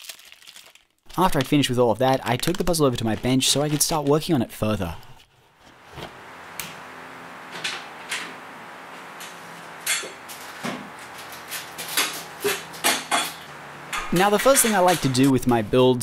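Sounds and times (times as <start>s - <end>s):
steady low hum: 5.8s - 16.0s
footsteps knocking: 9.0s - 15.1s.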